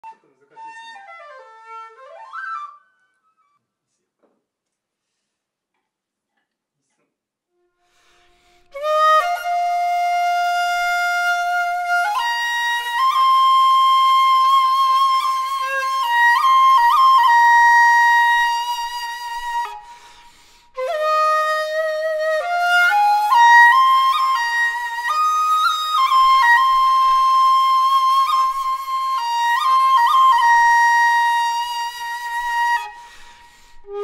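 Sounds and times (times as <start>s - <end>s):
shakuhachi flute playing: 0.0s - 3.5s, 7.6s - 34.0s.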